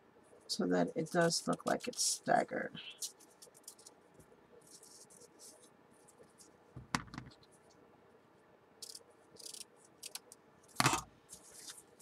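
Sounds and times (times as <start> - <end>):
ribbon rustling: 2.9 - 7.8, 8.8 - 12.0.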